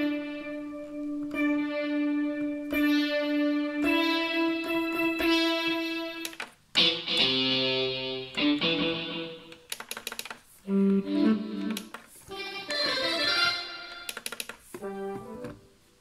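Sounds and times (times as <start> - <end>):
quick clicks: 9.5 - 10.4, 14.1 - 14.7.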